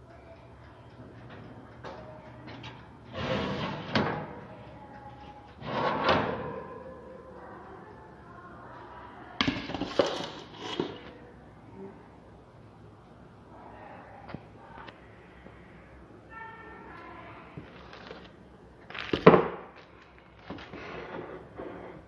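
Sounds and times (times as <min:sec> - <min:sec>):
oven door and rack clatter: 0:02.5 - 0:04.5, 0:05.6 - 0:06.8
metal cake pan scraping: 0:03.1 - 0:04.3, 0:05.6 - 0:06.5, 0:09.7 - 0:11.2.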